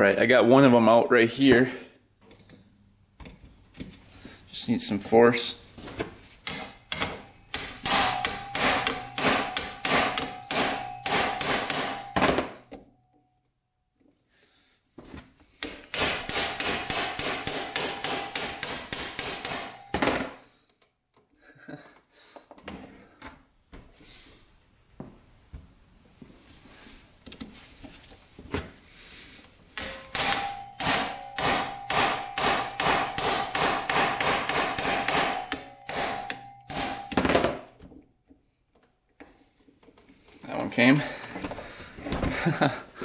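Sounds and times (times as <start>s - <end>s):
hammer striking metal impact driver: 6.4s - 12.9s, 15.6s - 20.4s, 29.8s - 37.6s.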